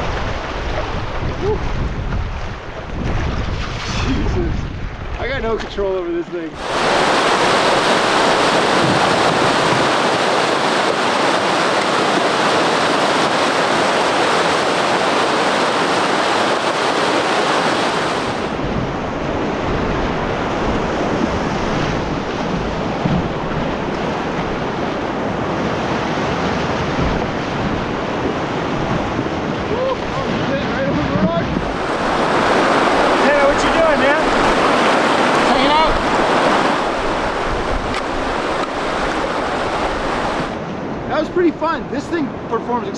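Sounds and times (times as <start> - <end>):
water churning around canoe: 0.0 - 41.1
wind buffeting microphone: 0.0 - 41.1
river rapids rushing: 6.5 - 41.2.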